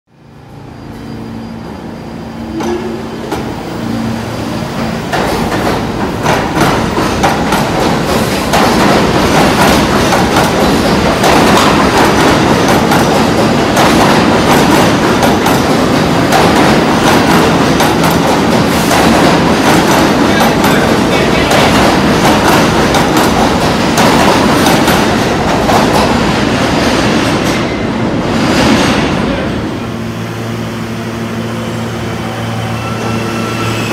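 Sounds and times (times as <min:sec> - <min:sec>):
subway train rumble: 0:00.1 - 0:33.9.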